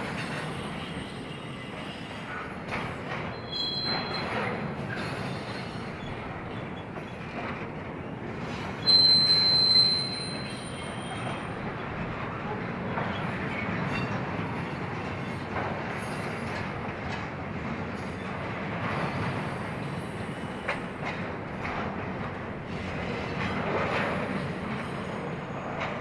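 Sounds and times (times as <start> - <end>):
freight train wheels rumbling: 0.0 - 26.0
steel wheel squeal: 3.3 - 7.2, 8.7 - 11.5.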